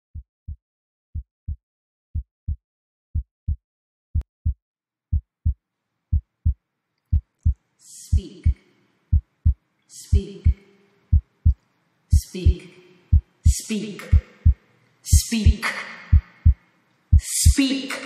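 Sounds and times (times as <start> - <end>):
heartbeat lub-dub thumps: 2.2 - 7.6, 9.1 - 9.6, 10.4 - 17.6.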